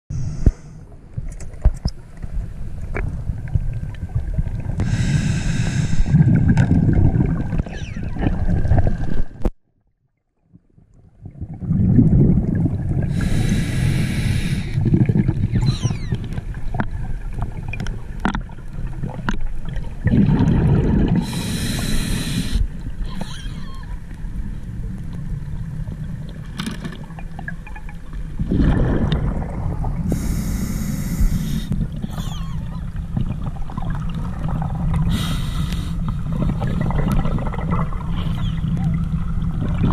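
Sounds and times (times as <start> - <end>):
diver breathing bubbles: 4.8 - 7.6, 11.4 - 16.1, 20.0 - 23.4, 28.4 - 32.7, 34.3 - 38.7.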